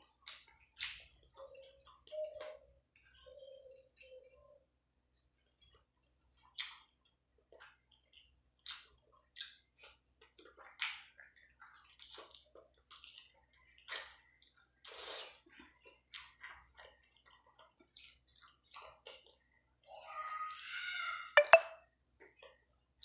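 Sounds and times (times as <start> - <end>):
chewing with lip smacks: 0.0 - 3.2, 5.6 - 19.5.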